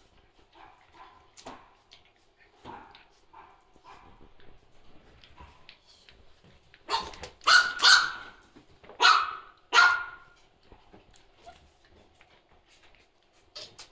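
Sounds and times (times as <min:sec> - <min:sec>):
dogs play-fighting: 0:00.0 - 0:09.1, 0:10.2 - 0:13.9
dog barking: 0:00.6 - 0:01.7, 0:06.9 - 0:08.4, 0:09.0 - 0:10.3.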